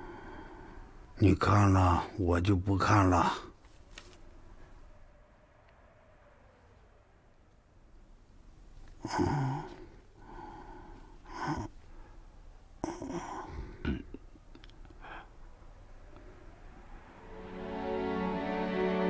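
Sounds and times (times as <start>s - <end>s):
man breathing heavily and sighing: 0.0s - 1.2s, 9.0s - 15.6s.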